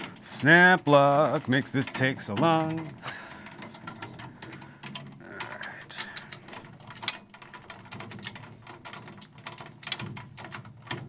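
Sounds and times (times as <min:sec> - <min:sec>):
drum key ratcheting tension rods: 0:00.0 - 0:11.0.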